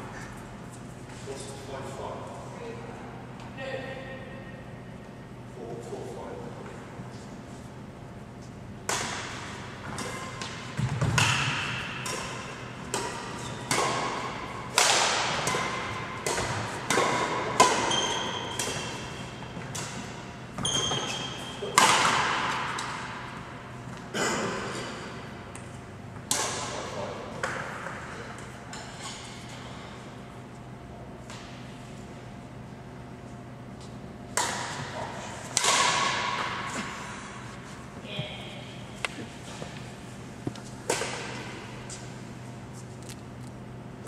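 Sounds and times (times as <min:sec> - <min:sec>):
racket striking shuttlecock: 0:08.8 - 0:23.3, 0:25.5 - 0:26.8, 0:34.3 - 0:37.0, 0:40.8 - 0:41.5
shoes squeaking on court floor: 0:13.2 - 0:13.8, 0:17.8 - 0:21.8.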